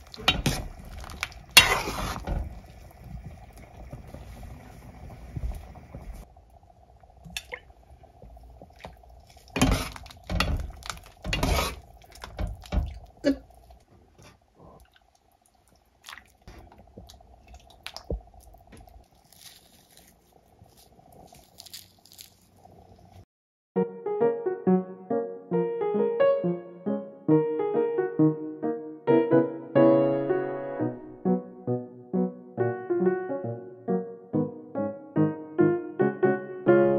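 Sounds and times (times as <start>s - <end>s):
faint hum: 0.0s - 23.2s.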